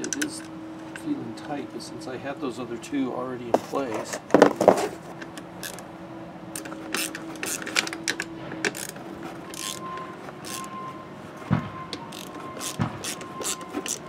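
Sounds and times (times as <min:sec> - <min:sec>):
metal rails clicking and rattling: 0:00.0 - 0:01.6, 0:06.5 - 0:10.8.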